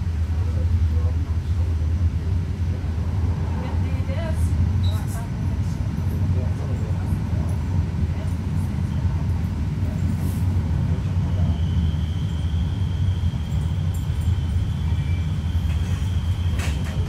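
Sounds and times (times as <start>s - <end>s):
freight train wagons passing: 0.0s - 17.0s
passenger train rumble: 0.0s - 17.0s
faint high whine: 11.0s - 17.0s.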